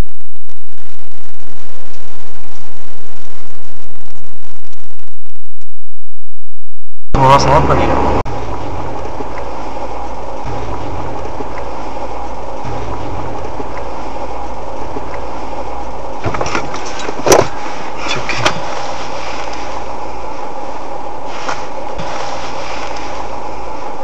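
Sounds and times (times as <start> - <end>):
car engine and road noise: 7.2 - 24.0.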